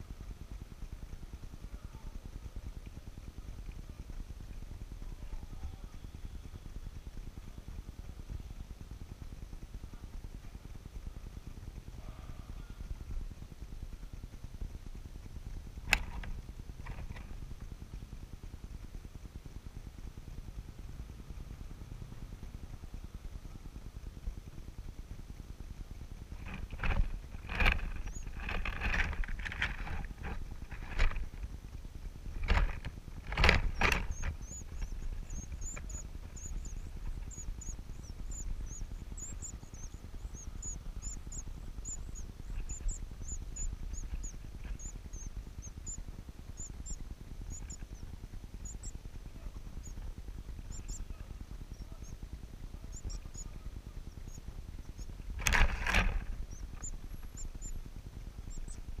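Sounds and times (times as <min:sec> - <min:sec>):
loud rustling bumps: 0:26.3 - 0:38.6, 0:55.3 - 0:57.4
chicks high begging peeps: 0:26.4 - 0:31.3, 0:32.4 - 0:58.9.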